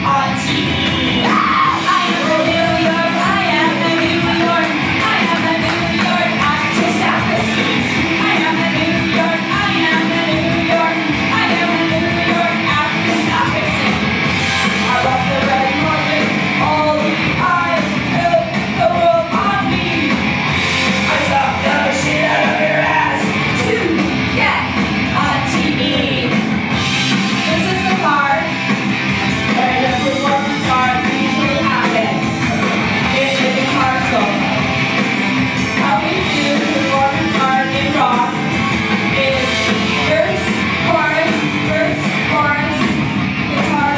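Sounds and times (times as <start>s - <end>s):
woman singing into microphone: 0.0s - 13.9s, 14.9s - 20.2s, 29.6s - 32.2s, 33.1s - 34.4s, 35.8s - 38.4s, 39.2s - 43.9s
loud rock music: 0.0s - 43.9s.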